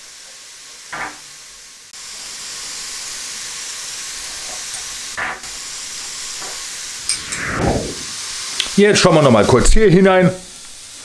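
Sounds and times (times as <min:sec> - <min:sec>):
meat sizzling on a grill: 0:00.0 - 0:07.1, 0:08.2 - 0:11.0.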